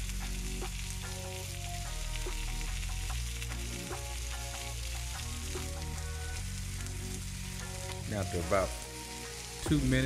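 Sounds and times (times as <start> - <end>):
background music with bass line: 0.0 - 10.0
chicken sizzling on grill pan: 0.0 - 10.0.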